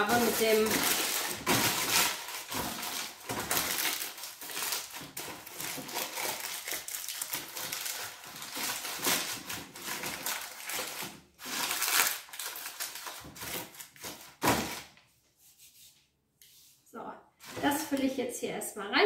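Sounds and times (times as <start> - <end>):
baking paper crinkling: 0.0 - 15.0.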